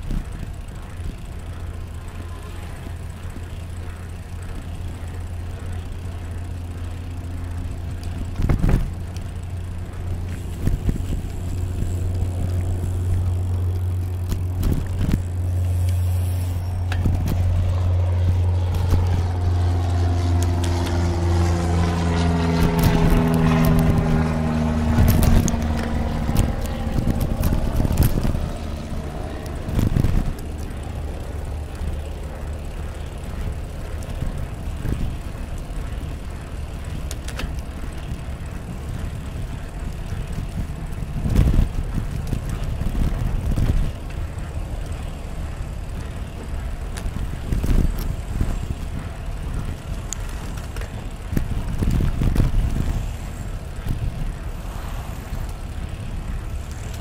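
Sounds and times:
scattered clicks: 0.0s - 54.7s, 55.3s - 57.0s
bicycle tyres rushing: 0.0s - 57.0s
engine passing by: 0.0s - 57.0s
wind: 0.0s - 57.0s.

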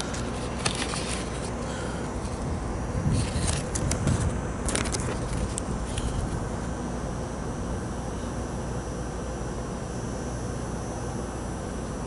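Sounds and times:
paper rustling: 0.0s - 1.6s, 3.2s - 6.2s.

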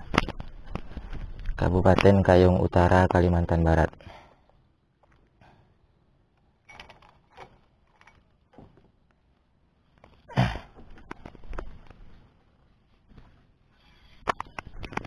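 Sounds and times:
handling noise knocks and rustles: 6.6s - 9.2s.

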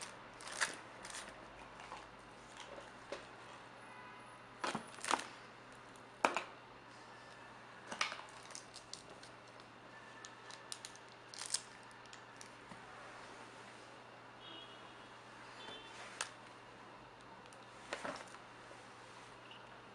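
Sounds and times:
clicks and rustles of packaging: 0.0s - 3.3s, 4.6s - 5.4s, 7.9s - 12.6s.

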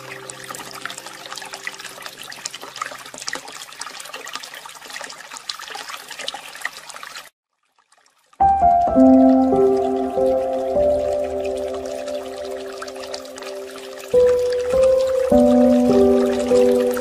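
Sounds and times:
water trickling: 0.0s - 17.0s
soft music with held notes: 8.4s - 17.0s.

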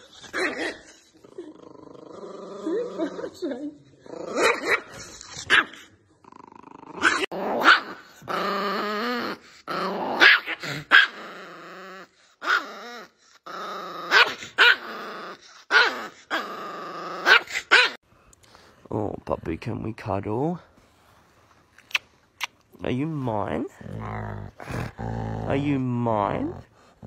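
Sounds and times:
small dog growling and snarling: 0.0s - 18.0s, 23.2s - 27.0s
small dog barking and yapping: 4.4s - 5.8s, 7.0s - 8.1s, 10.2s - 11.2s.

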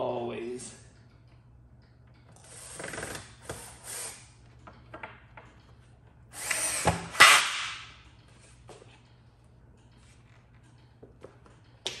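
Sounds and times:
power drill driving a screw: 6.4s - 7.3s.

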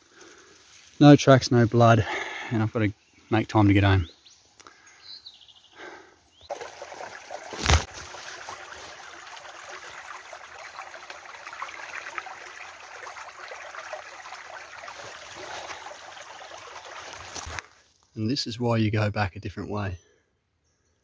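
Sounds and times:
creek trickling over stones: 6.5s - 18.1s.

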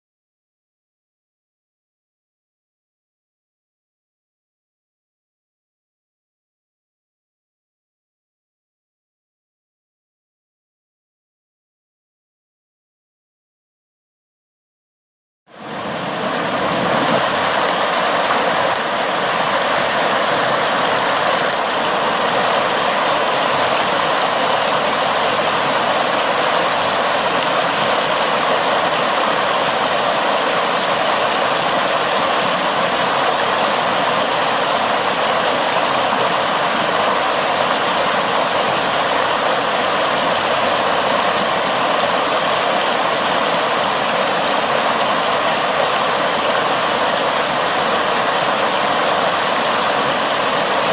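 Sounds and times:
floodwater rushing over concrete: 15.6s - 50.9s.

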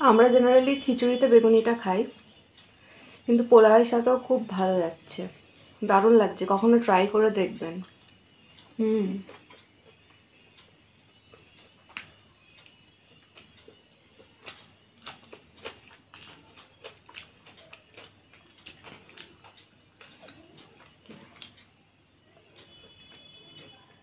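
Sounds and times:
person chewing: 7.8s - 23.9s.

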